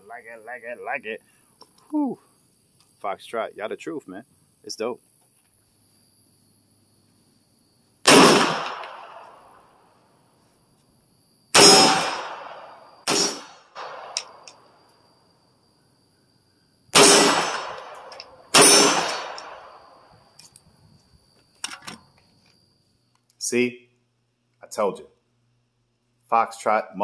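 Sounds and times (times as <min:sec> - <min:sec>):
gunshots with ringing tail: 0:08.0 - 0:09.6, 0:11.5 - 0:14.4, 0:16.9 - 0:20.1.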